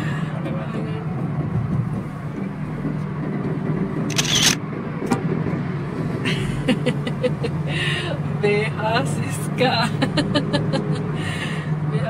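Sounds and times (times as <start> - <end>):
car engine and road noise: 0.0 - 12.0
sharp click: 4.1 - 4.6.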